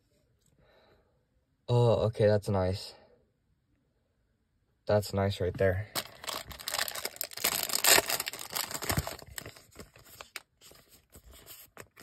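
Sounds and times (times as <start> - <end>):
plastic sleeve crinkling: 5.9 - 12.0.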